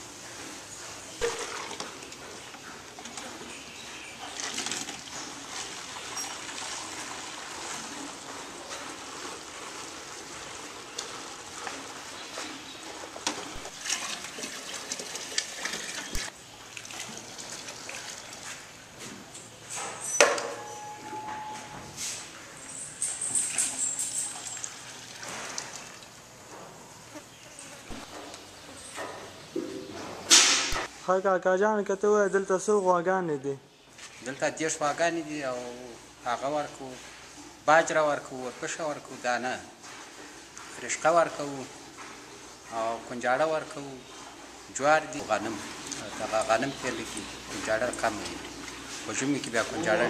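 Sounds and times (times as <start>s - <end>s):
milk trickling through funnel: 1.2s - 18.8s.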